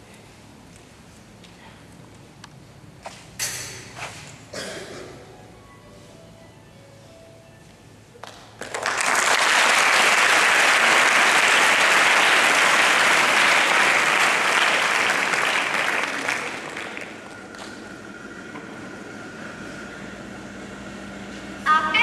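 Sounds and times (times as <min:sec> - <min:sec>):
audience applauding: 0:08.2 - 0:17.8.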